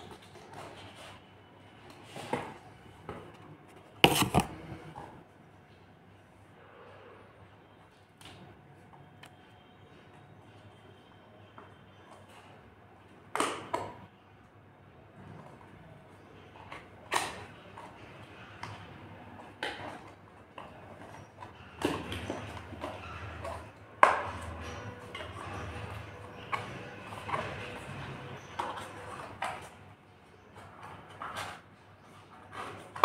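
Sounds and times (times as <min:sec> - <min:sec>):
cardboard box handled: 0:04.0 - 0:04.8.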